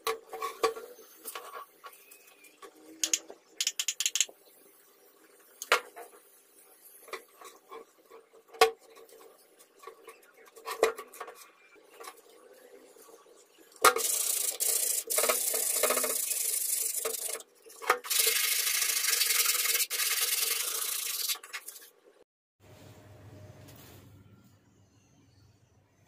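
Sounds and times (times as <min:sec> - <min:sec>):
aerosol spray can hissing: 0:14.0 - 0:17.4, 0:18.1 - 0:21.4.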